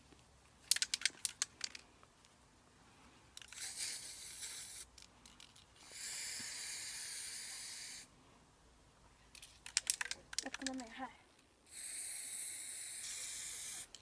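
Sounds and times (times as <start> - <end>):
spray paint can hissing: 3.5 - 4.9, 5.8 - 8.1, 11.7 - 14.0.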